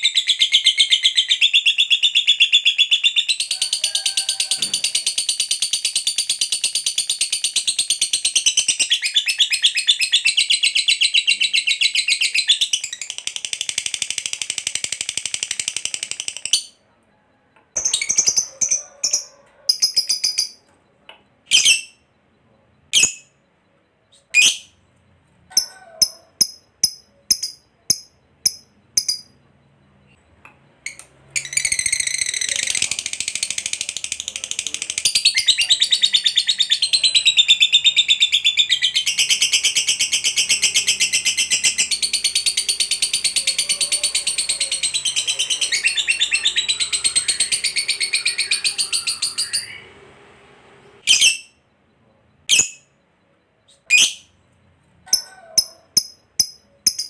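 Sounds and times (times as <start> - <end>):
lovebird sharp chirps: 21.4 - 22.1, 22.9 - 23.4, 25.5 - 49.9, 51.0 - 51.7, 52.5 - 53.0, 53.6 - 54.4, 55.1 - 57.0
lovebird fast trill: 25.5 - 30.0, 30.8 - 49.9, 55.1 - 57.0.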